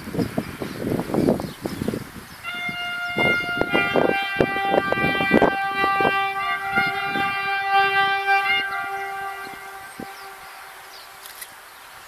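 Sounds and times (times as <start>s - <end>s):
locomotive horn chord: 2.4s - 11.4s.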